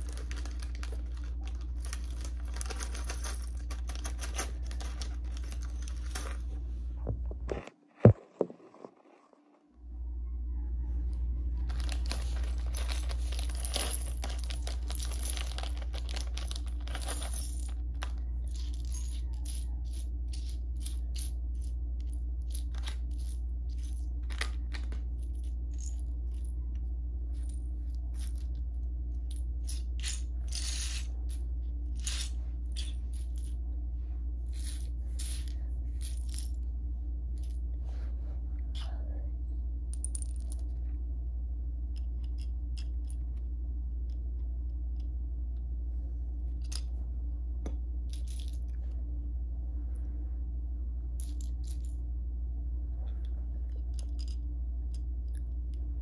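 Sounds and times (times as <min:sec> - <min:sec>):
plastic bricks clicking and rattling: 0:00.0 - 0:06.4, 0:11.7 - 0:21.7
steady low hum: 0:00.0 - 0:56.0.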